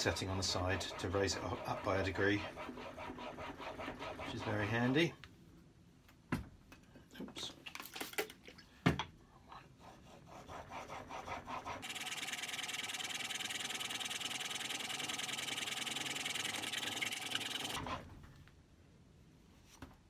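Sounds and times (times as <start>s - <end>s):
blade rasping on whetstone: 0.0s - 4.8s, 9.8s - 18.0s.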